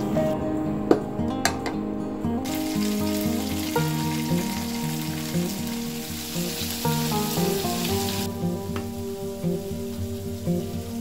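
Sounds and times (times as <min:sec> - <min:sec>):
background music: 0:00.0 - 0:11.0
cheese sizzling in hot oil: 0:02.5 - 0:11.0.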